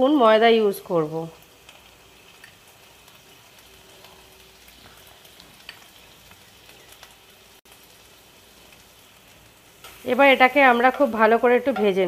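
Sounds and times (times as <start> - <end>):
butter and oil sizzling in a pan: 0.0 - 12.0.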